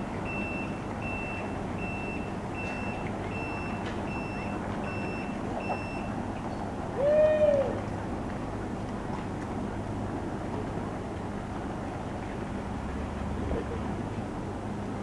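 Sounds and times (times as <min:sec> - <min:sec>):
electronic warning beeps: 0:00.2 - 0:06.1.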